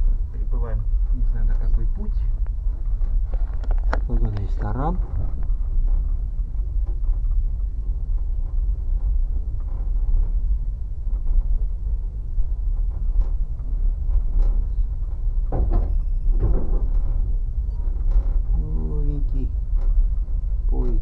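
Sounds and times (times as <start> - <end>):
train rumbling from inside carriage: 0.0 - 21.0
train wheel knocks: 12.8 - 18.5
clatter with high squeal: 15.8 - 17.0.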